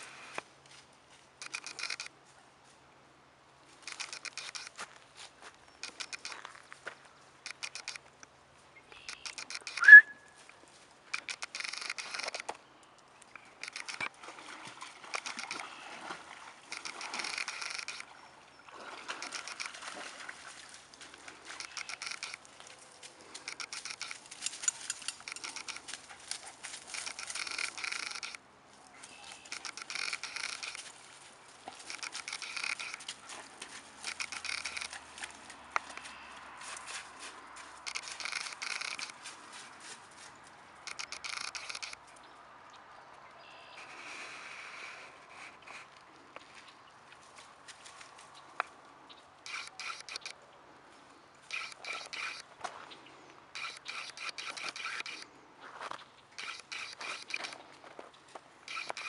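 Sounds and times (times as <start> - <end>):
footsteps crunching on dry brush: 4.6 - 7.2
sharp high squeak: 9.1 - 10.4, 51.5 - 52.4, 53.6 - 55.2.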